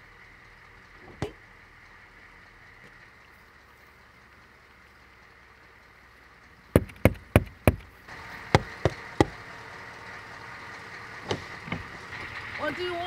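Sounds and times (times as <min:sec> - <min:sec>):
knocking on car window: 0:06.8 - 0:07.9, 0:08.6 - 0:09.4.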